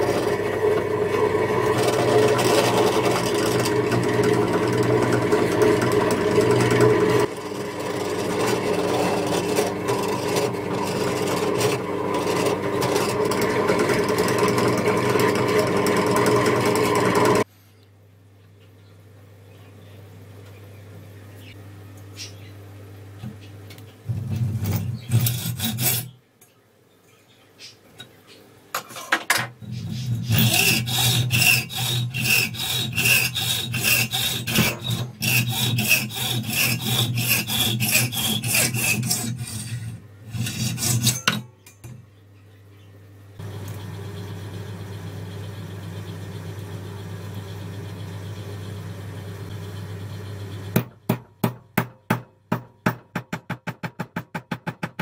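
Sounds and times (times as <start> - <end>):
hacksaw cutting metal: 0.0 - 17.4, 24.7 - 26.1, 29.7 - 42.0.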